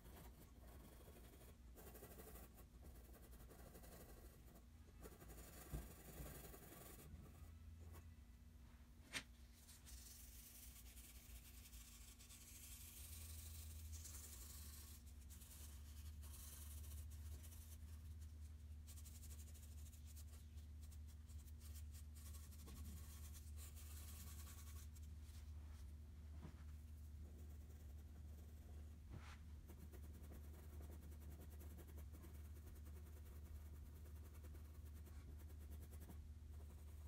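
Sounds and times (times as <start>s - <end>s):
steady low hum: 0.0s - 37.0s
drawing tool scratching paper: 9.9s - 18.0s.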